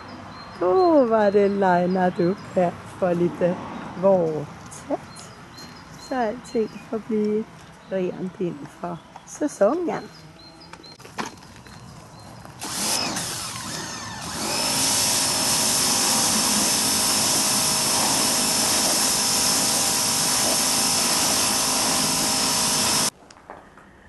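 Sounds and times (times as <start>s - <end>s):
pressure washer motor whine: 12.6s - 23.1s
water jet hissing on wood: 14.5s - 23.1s.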